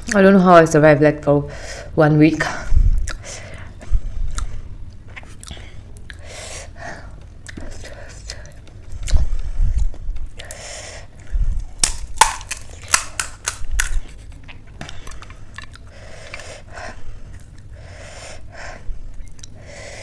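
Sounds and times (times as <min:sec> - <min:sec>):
crisp shell crackling: 0:11.8 - 0:14.2.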